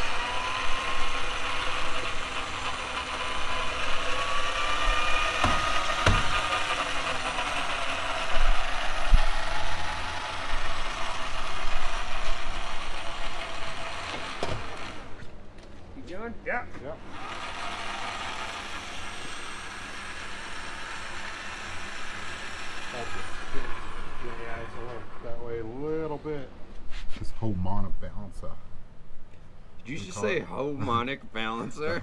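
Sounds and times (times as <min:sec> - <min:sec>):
mechanical motor whirring: 0:00.0 - 0:15.4, 0:17.0 - 0:25.5.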